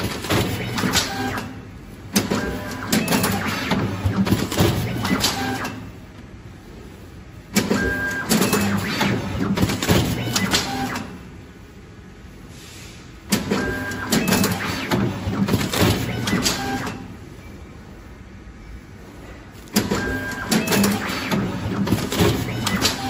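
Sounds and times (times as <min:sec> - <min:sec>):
wrapping machine clattering: 0:19.7 - 0:23.0.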